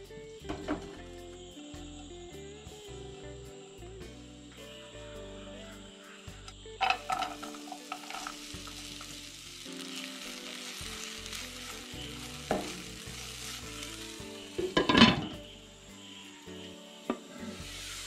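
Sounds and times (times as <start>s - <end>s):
vegetables sizzling in oil: 3.8s - 18.0s.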